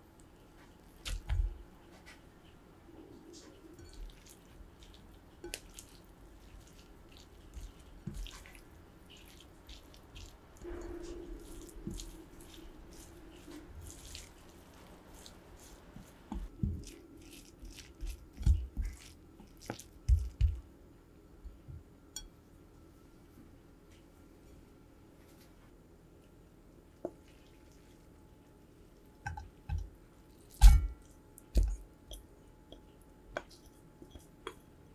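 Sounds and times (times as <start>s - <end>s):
spoon mashing wet rice: 0.5s - 2.2s, 3.0s - 20.7s, 29.0s - 34.9s.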